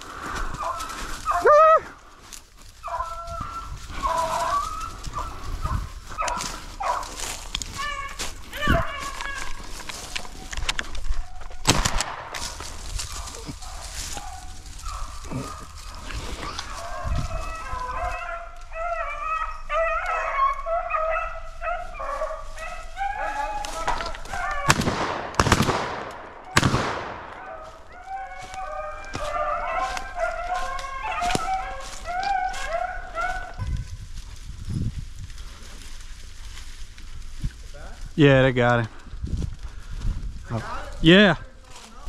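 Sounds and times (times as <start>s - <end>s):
beagles baying: 0.0s - 11.6s, 12.3s - 25.1s, 26.4s - 33.9s.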